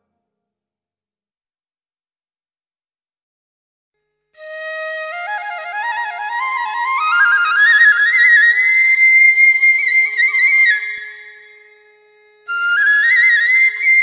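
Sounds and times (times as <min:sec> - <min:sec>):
solo flute melody: 0:04.4 - 0:14.0.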